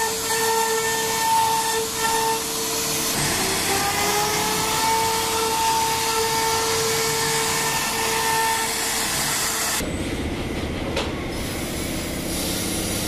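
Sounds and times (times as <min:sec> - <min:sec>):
router spindle rushing and whining: 0:00.0 - 0:09.8.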